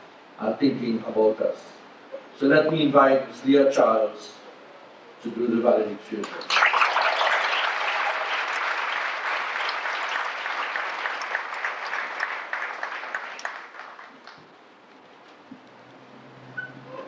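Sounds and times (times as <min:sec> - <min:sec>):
audience applauding: 0:06.2 - 0:14.5.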